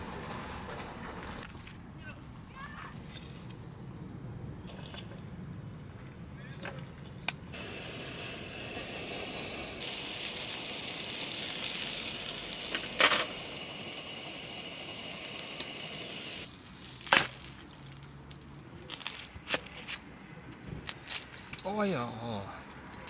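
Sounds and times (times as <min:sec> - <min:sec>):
wood fire crackling: 0:00.0 - 0:01.7, 0:07.5 - 0:20.0.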